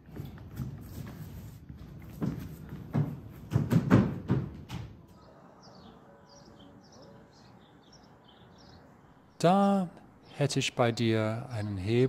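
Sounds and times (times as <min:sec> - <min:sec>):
small birds chirping: 0:05.1 - 0:12.0.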